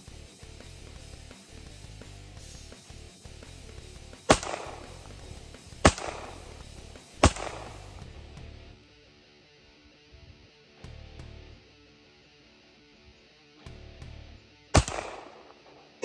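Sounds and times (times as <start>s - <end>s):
pistol shots with echo: 4.3s - 5.2s, 5.8s - 6.6s, 7.2s - 8.0s, 14.7s - 16.0s.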